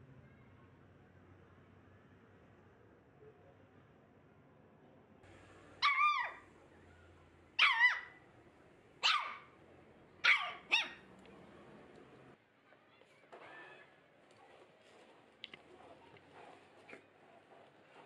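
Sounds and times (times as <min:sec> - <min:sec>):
small dog barking: 0:05.8 - 0:06.4, 0:07.6 - 0:08.2, 0:09.0 - 0:09.6, 0:10.2 - 0:11.1.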